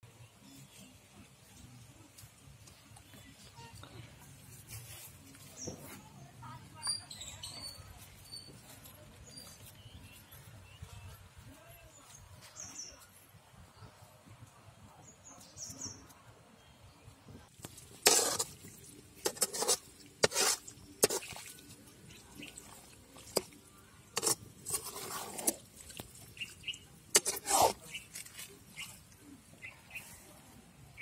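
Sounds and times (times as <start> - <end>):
metal ladle scraping a metal pan: 17.9 - 18.6, 19.2 - 21.4, 24.2 - 25.6, 27.1 - 28.3.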